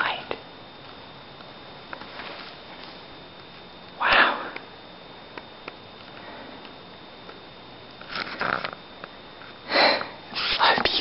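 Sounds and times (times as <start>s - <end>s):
person sniffing: 9.7s - 11.0s.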